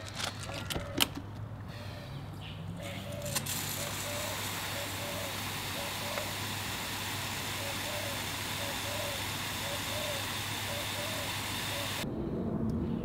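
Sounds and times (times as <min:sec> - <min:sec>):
water hissing through hose: 0:03.1 - 0:12.0.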